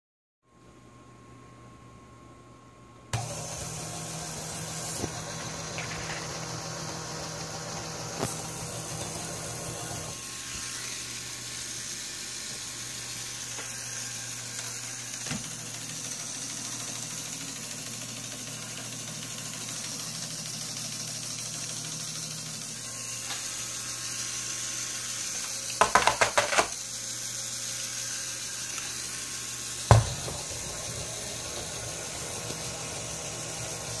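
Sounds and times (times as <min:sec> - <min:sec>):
small electric motor whirring: 0:03.2 - 0:34.0.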